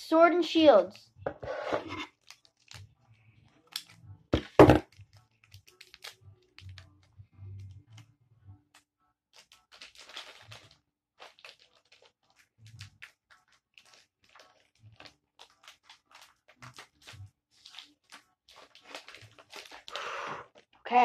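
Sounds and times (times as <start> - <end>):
foil wrapper crinkling: 2.1 - 2.9, 4.9 - 7.0, 9.3 - 20.8.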